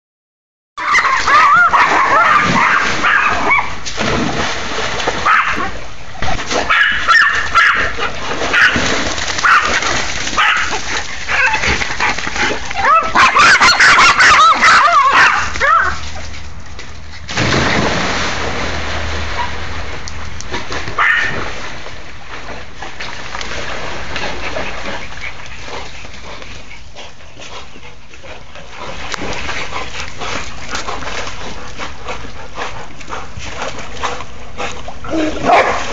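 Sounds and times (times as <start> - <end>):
dogs barking and yipping: 0.8 - 3.8, 5.2 - 5.7, 6.6 - 16.2, 35.1 - 35.9
water splashing: 0.8 - 26.7.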